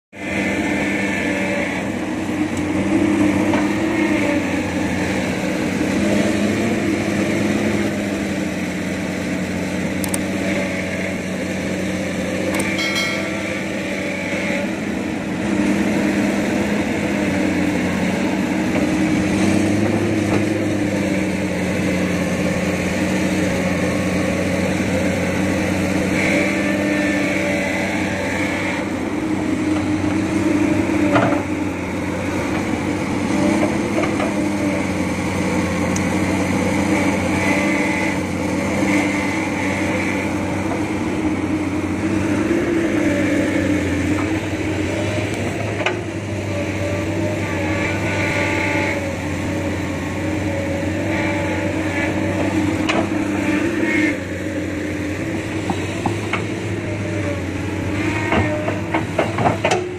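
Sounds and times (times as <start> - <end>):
excavator diesel engine running: 0.2 - 59.9
metal clank: 12.6 - 13.8.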